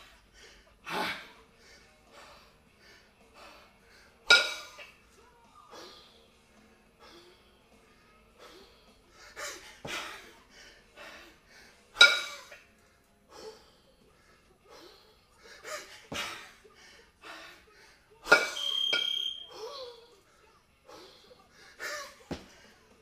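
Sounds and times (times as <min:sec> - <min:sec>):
heavy rapid breathing: 0:00.0 - 0:04.2, 0:06.9 - 0:12.0, 0:12.8 - 0:18.4, 0:19.5 - 0:23.0
sharp effort grunts: 0:00.9 - 0:01.4
kettlebells clanking and ringing: 0:04.3 - 0:04.8, 0:12.0 - 0:12.5, 0:18.3 - 0:19.4.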